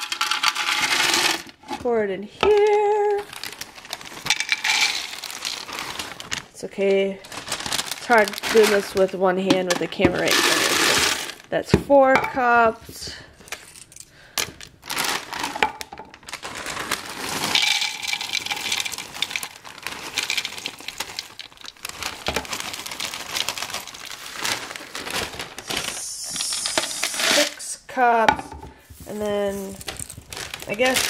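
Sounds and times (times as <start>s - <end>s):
cereal pieces pouring into canister: 0.0s - 1.6s, 3.3s - 6.4s, 10.2s - 11.4s, 16.3s - 27.6s
plastic bag crinkling: 2.5s - 11.5s, 13.3s - 27.6s, 28.8s - 31.0s.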